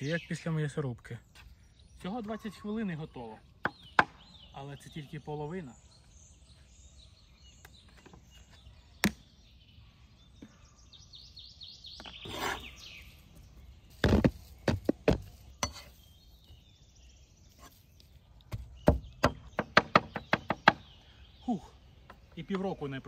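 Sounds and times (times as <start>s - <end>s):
cleaver chopping on wooden board: 3.6s - 4.2s.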